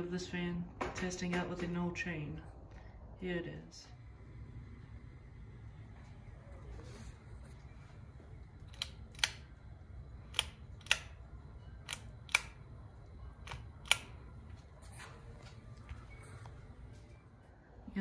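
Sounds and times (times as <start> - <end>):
pull-chain light switch clicking: 8.6 - 14.4.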